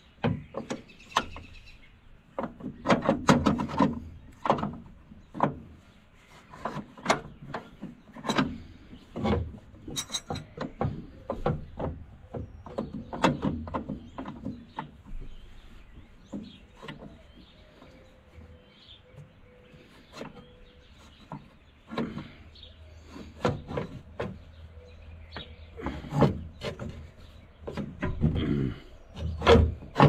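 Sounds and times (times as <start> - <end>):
metal tools clinking and scraping: 9.8 - 10.6.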